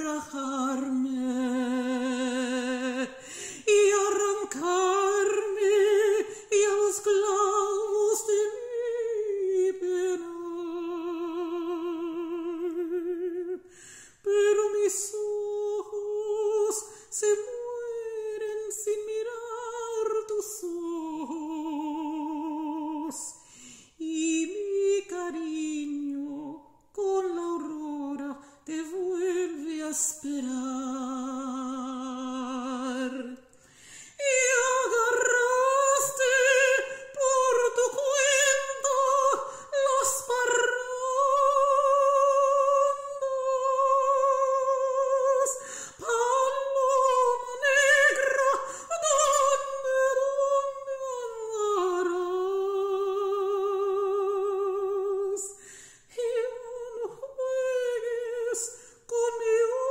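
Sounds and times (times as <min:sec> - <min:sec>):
woman singing unaccompanied: 0:00.0 - 0:59.9.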